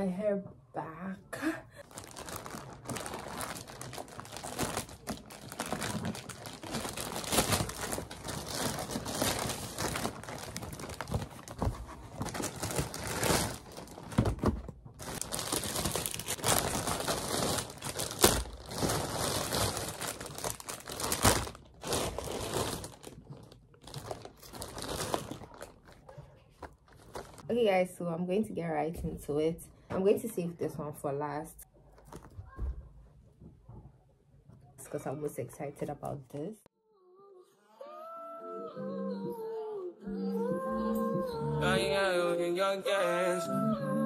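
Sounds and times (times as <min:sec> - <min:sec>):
plastic packaging crinkling: 0:01.8 - 0:27.4
plastic tearing: 0:01.8 - 0:27.4.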